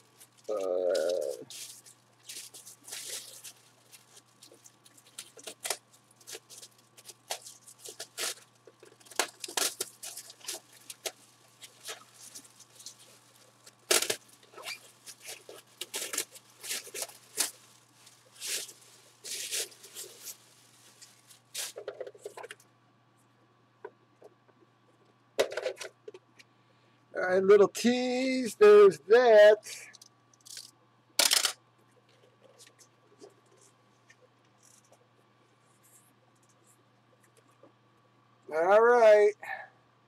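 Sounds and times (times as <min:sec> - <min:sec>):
packaging rustling and tearing: 0:00.0 - 0:22.5.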